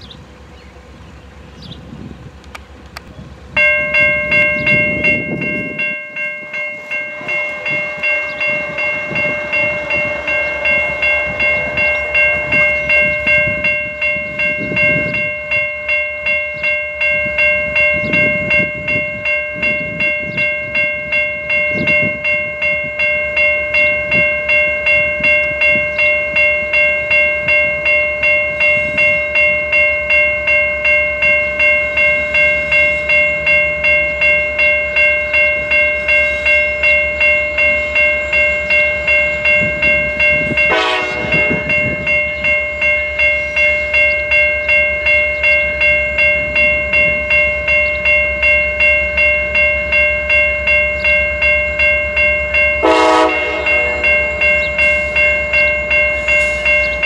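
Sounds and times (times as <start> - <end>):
railroad bell ringing: 0.0 - 57.0.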